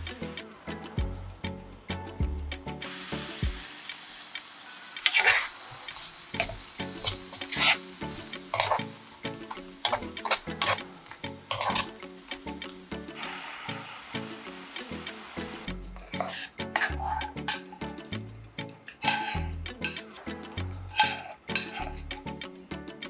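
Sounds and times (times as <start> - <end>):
mushrooms sizzling in butter: 0.0 - 0.4, 2.8 - 18.2, 19.0 - 22.2
soft background music: 0.0 - 23.0
spatula scraping a pan: 4.7 - 12.0, 16.0 - 17.9, 18.9 - 22.1.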